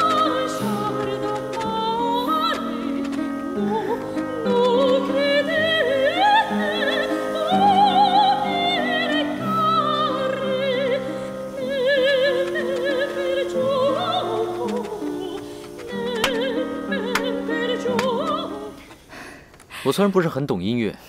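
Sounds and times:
woman singing with vibrato: 0:00.0 - 0:19.0
instrumental accompaniment: 0:00.0 - 0:19.6.

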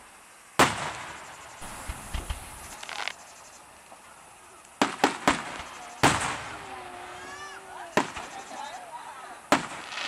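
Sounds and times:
loud firework bangs: 0:00.6 - 0:03.1, 0:04.8 - 0:07.1, 0:07.9 - 0:08.4, 0:09.4 - 0:10.0
small sharp firework pops: 0:00.6 - 0:03.2, 0:04.6 - 0:06.6, 0:07.9 - 0:08.4, 0:09.5 - 0:10.0.

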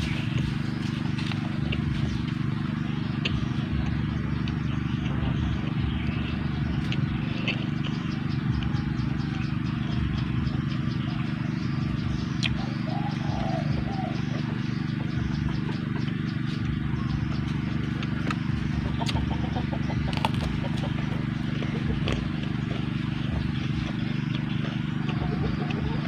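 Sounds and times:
steady low hum: 0:00.0 - 0:26.0
person chewing food: 0:22.0 - 0:22.9.

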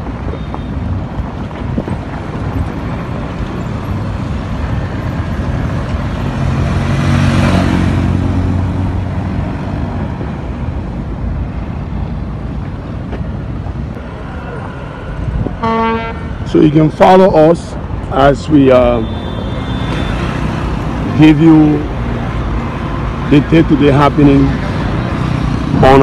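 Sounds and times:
wind rumbling on microphone: 0:00.0 - 0:18.6
vehicle passing: 0:00.9 - 0:26.0.

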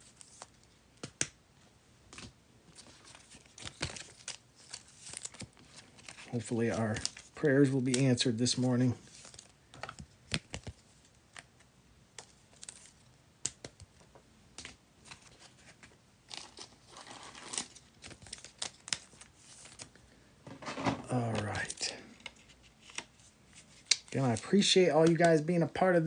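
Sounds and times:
plastic wrap crinkling and tearing: 0:02.8 - 0:09.6, 0:15.1 - 0:20.0.

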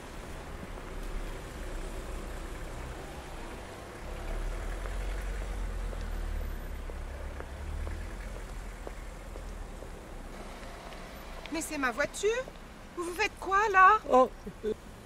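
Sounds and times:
footsteps on asphalt: 0:03.4 - 0:13.4.

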